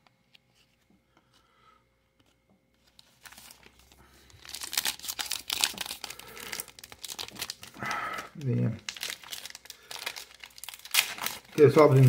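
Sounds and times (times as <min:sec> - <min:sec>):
foil wrapper crinkling and tearing: 0:02.9 - 0:12.0.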